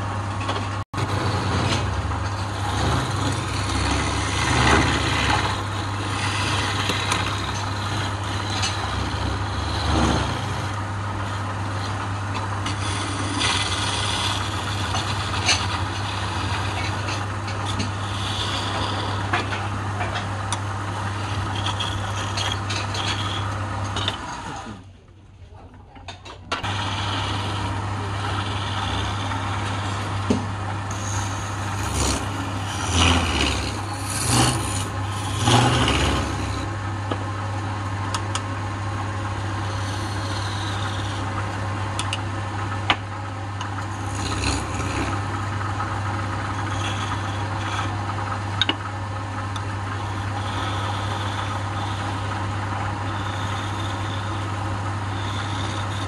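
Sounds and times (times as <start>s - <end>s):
chisel scraping spinning wood: 0.0s - 24.8s, 26.6s - 56.0s
lathe motor hum: 0.0s - 24.9s, 26.6s - 56.0s.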